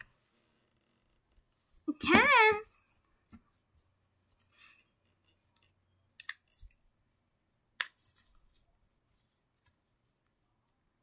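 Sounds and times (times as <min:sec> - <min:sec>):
soft rustling of plush toys: 0:00.0 - 0:05.4.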